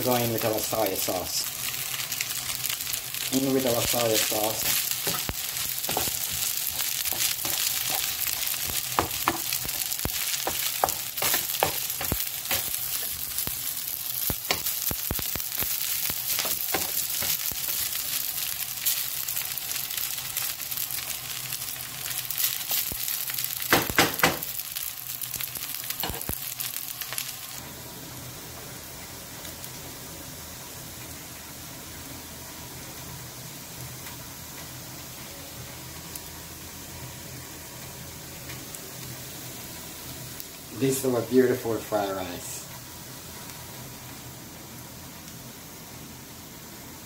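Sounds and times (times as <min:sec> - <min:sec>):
rice sizzling in hot pan: 0:00.0 - 0:47.0.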